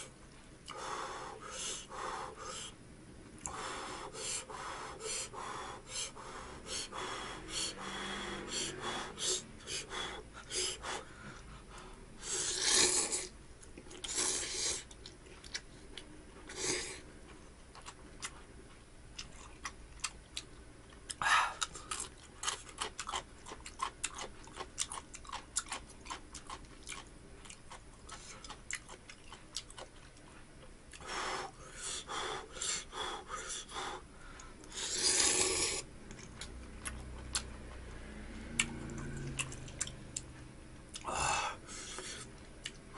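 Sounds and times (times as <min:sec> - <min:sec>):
wet chewing and lip-smacking: 0:13.6 - 0:16.1, 0:17.7 - 0:18.5, 0:19.1 - 0:31.1, 0:36.0 - 0:41.1, 0:41.8 - 0:42.9.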